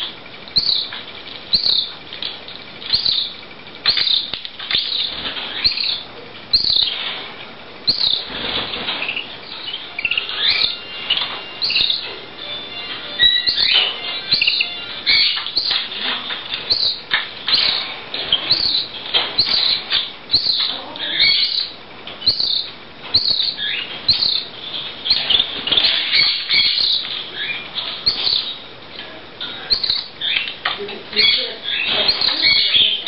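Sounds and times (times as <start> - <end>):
chick chirping: 0.0 - 7.0, 7.8 - 28.7, 29.6 - 33.0
wings fluttering: 8.1 - 9.4.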